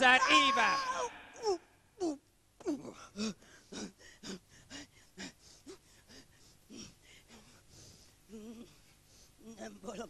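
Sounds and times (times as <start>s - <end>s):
person sobbing in breathy gasps: 1.4s - 7.6s.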